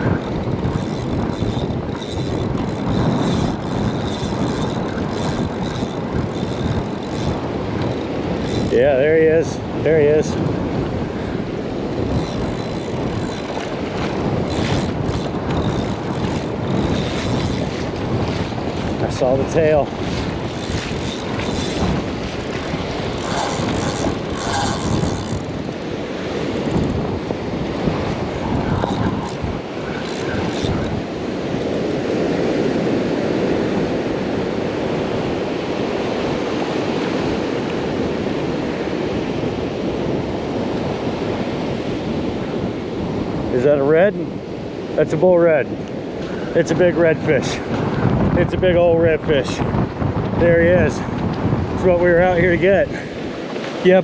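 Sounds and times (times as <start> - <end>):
wind buffeting microphone: 0.0 - 54.0
surf breaking on beach: 3.8 - 38.9.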